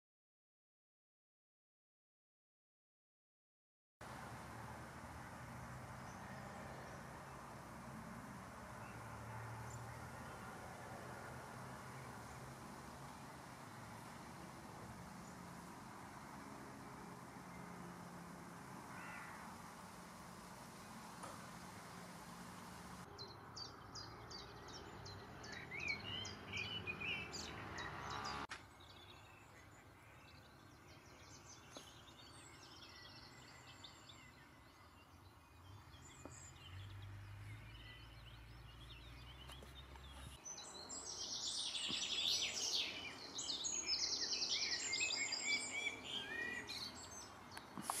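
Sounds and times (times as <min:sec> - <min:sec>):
outdoor ambience: 0:04.0 - 0:48.0
songbirds singing and chirping: 0:04.1 - 0:48.0.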